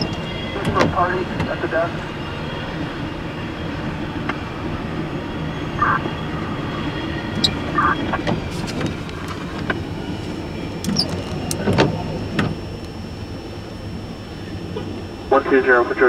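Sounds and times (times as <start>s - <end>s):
freight train wheels on rails: 0.0s - 13.0s.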